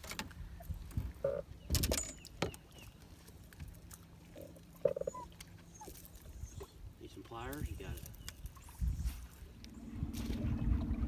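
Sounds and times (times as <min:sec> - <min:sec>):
fishing gear clattering on deck: 0:01.7 - 0:02.6.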